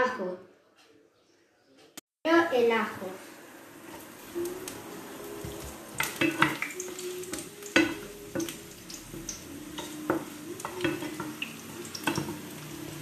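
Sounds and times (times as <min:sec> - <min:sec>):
garlic sizzling in hot oil: 0:02.6 - 0:13.0
wooden spoon scraping a pan: 0:05.4 - 0:13.0.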